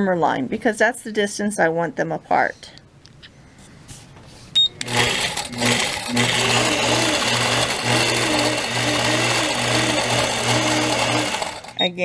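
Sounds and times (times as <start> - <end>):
quilting machine motor hum: 4.6 - 11.8.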